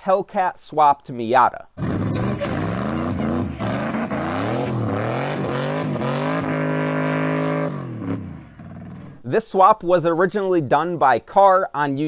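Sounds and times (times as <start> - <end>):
car engine revving: 1.8 - 9.2.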